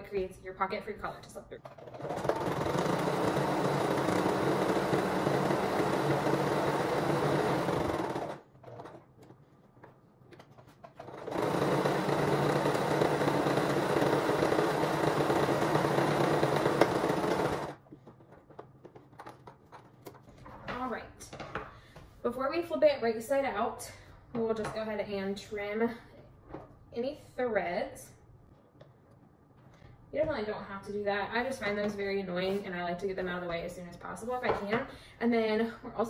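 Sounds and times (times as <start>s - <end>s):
electric sewing machine stitching: 1.7s - 9.0s, 11.0s - 17.8s.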